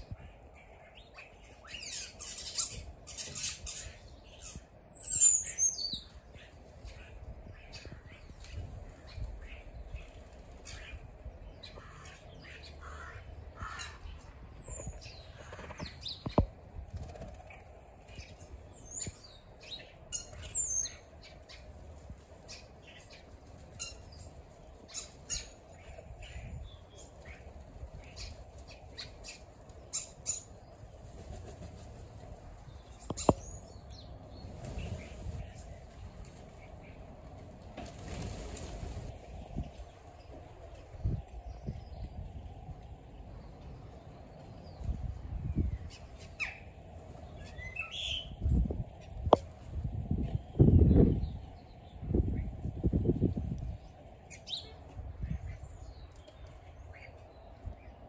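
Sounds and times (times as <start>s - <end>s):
birds squawking and chirping: 0.7s - 16.4s
wings flapping: 16.9s - 17.8s, 30.9s - 32.5s, 34.4s - 36.6s, 37.5s - 40.0s.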